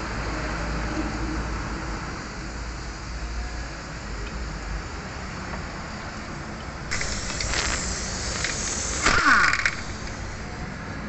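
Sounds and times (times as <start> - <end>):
steady background noise: 0.0 - 11.0
socket ratchet clicking: 6.9 - 10.1.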